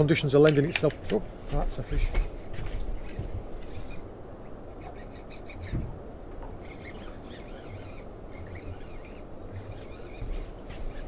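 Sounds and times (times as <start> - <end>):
fishing reel rasping and clicking: 3.0 - 4.1, 4.8 - 5.8, 6.6 - 11.0.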